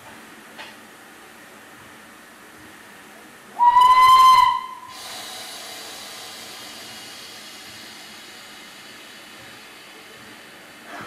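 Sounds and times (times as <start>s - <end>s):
steam locomotive whistle: 3.6s - 5.4s
steam hissing: 3.6s - 11.0s.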